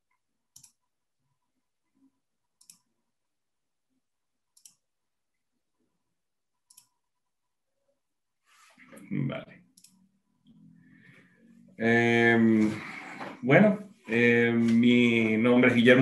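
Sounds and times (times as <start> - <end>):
faint computer mouse clicks: 2.6 - 2.9, 4.6 - 4.8, 6.7 - 6.9, 9.7 - 10.1.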